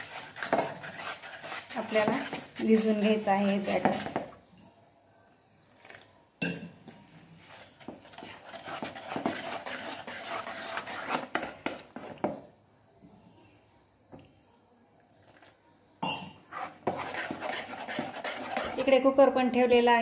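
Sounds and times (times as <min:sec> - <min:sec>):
spatula scraping batter in bowl: 0:00.0 - 0:04.4, 0:07.4 - 0:12.4, 0:16.4 - 0:19.0.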